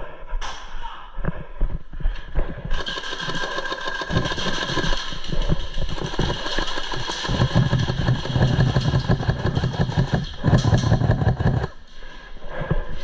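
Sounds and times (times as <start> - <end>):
airsoft guns firing full auto: 2.7 - 11.8.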